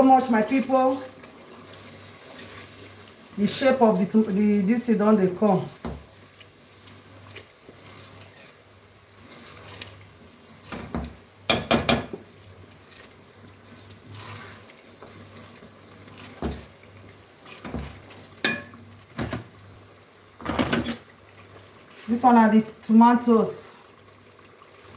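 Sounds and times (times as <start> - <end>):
wooden spoon scraping a pot: 0.0 - 19.4.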